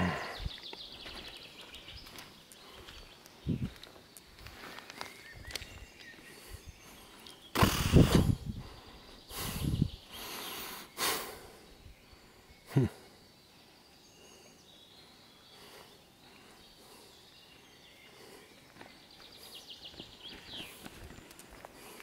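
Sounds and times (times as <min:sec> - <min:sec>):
forest ambience: 0:00.0 - 0:22.0.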